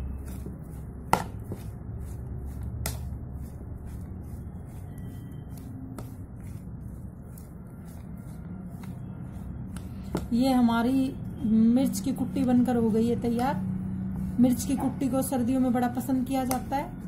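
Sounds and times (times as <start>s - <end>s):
spoon scraping ceramic bowl: 0.0s - 10.3s.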